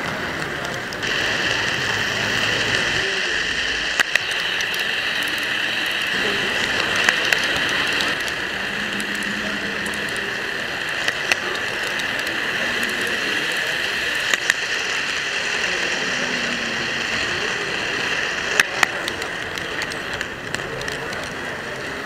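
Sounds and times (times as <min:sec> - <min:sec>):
model train running on track: 0:00.0 - 0:22.0
sharp clicks: 0:03.7 - 0:14.8, 0:18.2 - 0:21.4.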